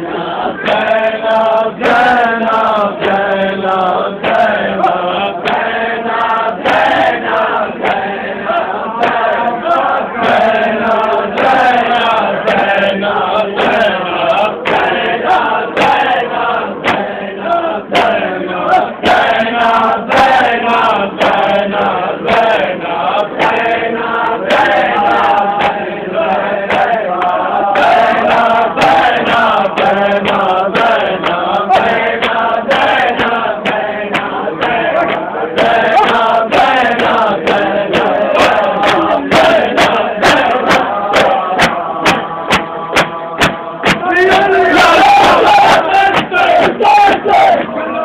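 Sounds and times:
men chanting in unison: 0:00.0 - 0:48.0
hands slapping chests: 0:26.6 - 0:47.8.

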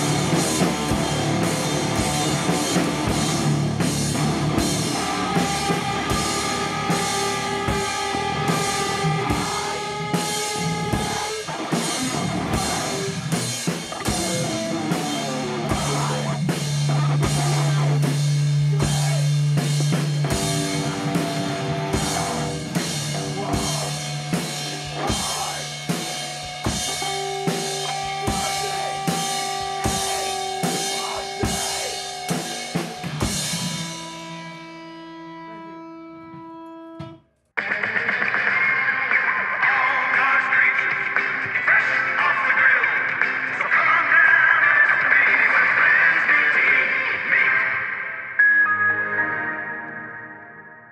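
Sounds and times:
punk rock drum beat: 0:00.0 - 0:35.1.

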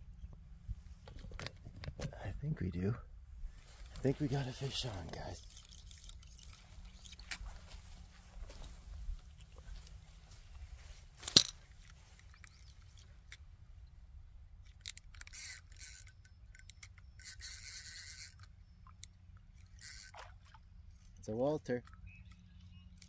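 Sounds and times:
fishing reel winding: 0:04.5 - 0:07.4, 0:14.7 - 0:18.5, 0:19.6 - 0:20.2.

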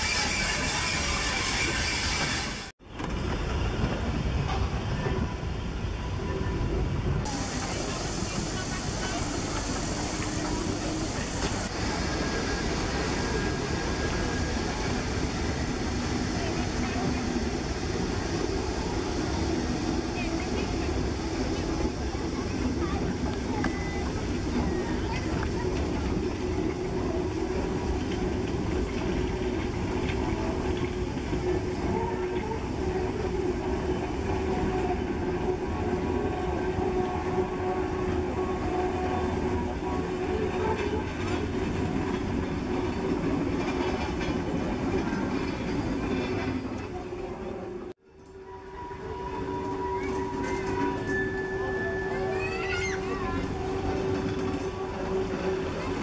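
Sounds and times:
train wheels rumbling on rails: 0:00.0 - 0:56.0
steam hissing: 0:07.3 - 0:36.4
steam locomotive exhaust: 0:07.3 - 0:42.4.

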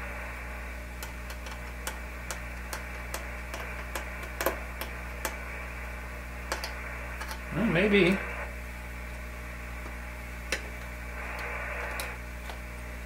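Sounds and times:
low mains hum: 0:00.0 - 0:13.0
radio static hiss: 0:00.0 - 0:13.0
light clicks of tuner coil: 0:01.0 - 0:05.6, 0:06.4 - 0:08.4, 0:09.0 - 0:12.6.

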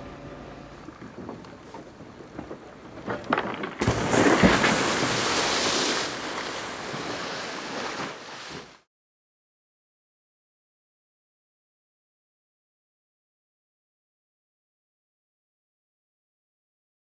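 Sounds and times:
water sloshing and knocking: 0:01.0 - 0:08.8
rush of water pouring off boat: 0:03.8 - 0:08.8.

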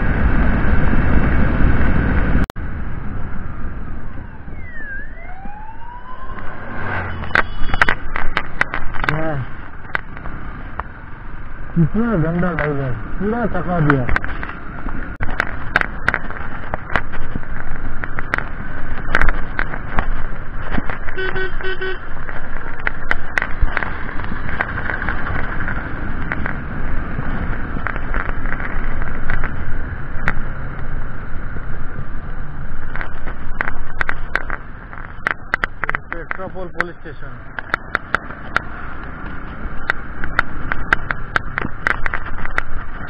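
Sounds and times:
wind buffeting microphone: 0:00.0 - 0:04.5
motorcycle road noise: 0:00.0 - 0:43.0
horn beeping: 0:07.0 - 0:08.1, 0:21.2 - 0:22.1.

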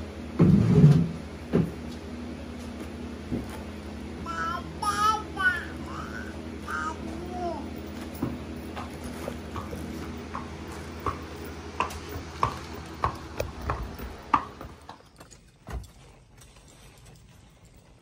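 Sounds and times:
steady low hum: 0:00.0 - 0:18.0
hooves clip-clopping on concrete: 0:07.8 - 0:18.0.

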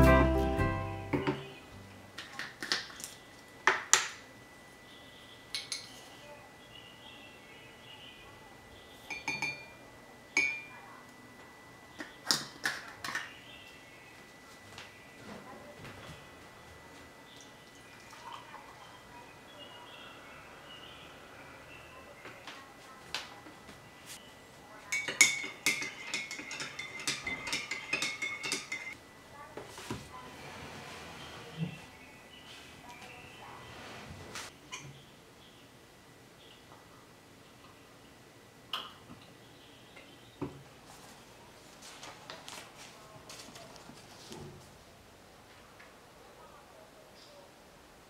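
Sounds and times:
metal spoon clinking on glass jar: 0:09.1 - 0:09.6, 0:24.9 - 0:29.0.

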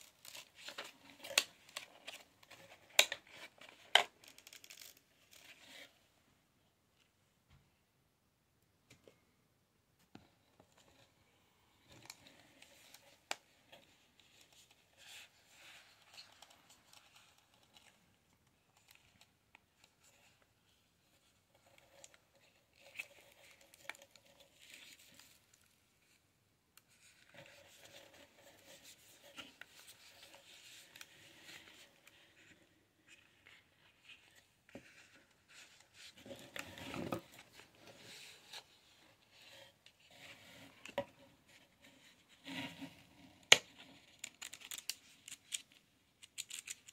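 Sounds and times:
packaging crinkling and clicking: 0:43.6 - 0:46.9.

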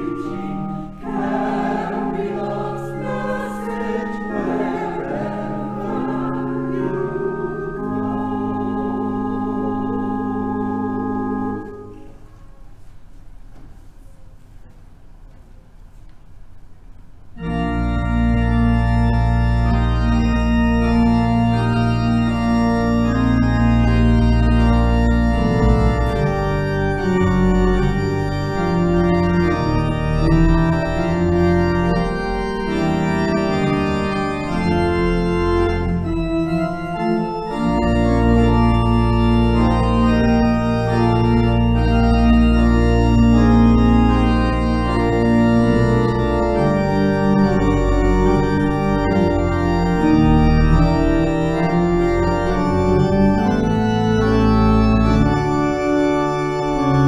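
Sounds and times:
deep organ pedal bass: 0:00.0 - 0:12.0, 0:17.4 - 0:57.0
church organ playing chords: 0:00.0 - 0:12.8, 0:17.2 - 0:57.0.

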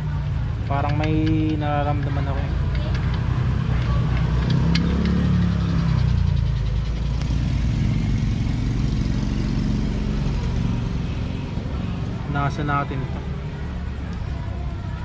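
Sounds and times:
vehicle engine running: 0:00.0 - 0:15.0.

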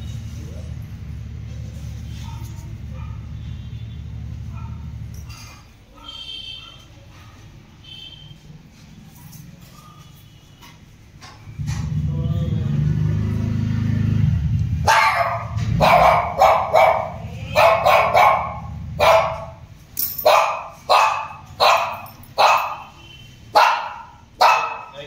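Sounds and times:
dog barking: 0:02.1 - 0:03.6, 0:04.4 - 0:07.6, 0:14.8 - 0:19.6, 0:20.2 - 0:25.0.

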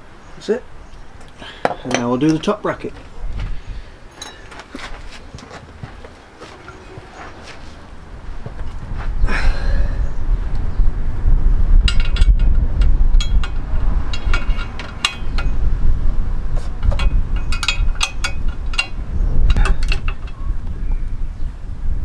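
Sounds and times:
tools clinking on metal bolts: 0:04.1 - 0:04.7, 0:11.9 - 0:15.6, 0:16.8 - 0:20.4
low steady rumble: 0:06.6 - 0:22.0.

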